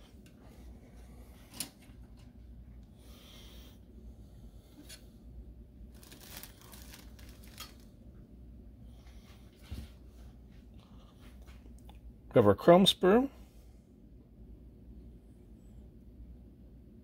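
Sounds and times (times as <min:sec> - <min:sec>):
plastic parts rustling and clicking: 0:05.9 - 0:07.8.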